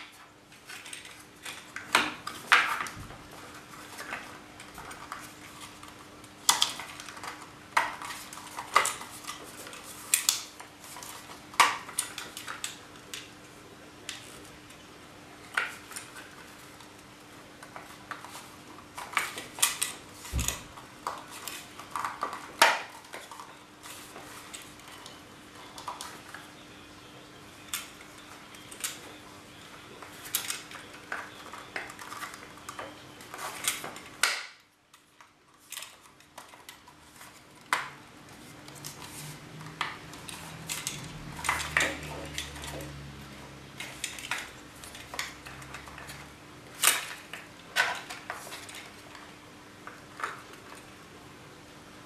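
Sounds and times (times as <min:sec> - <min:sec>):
plastic parts clicking and clinking: 0:38.7 - 0:43.0.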